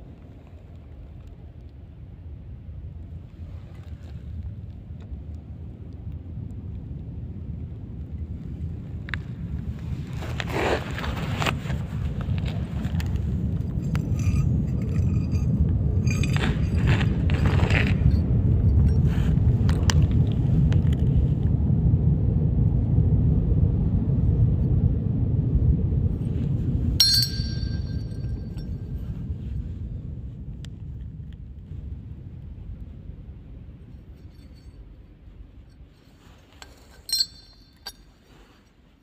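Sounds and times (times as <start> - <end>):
low rumble: 11.8 - 38.5
steel plates clinking on concrete: 13.8 - 19.0, 27.0 - 28.7, 36.6 - 38.2
metal plate striking floor: 27.0 - 28.6.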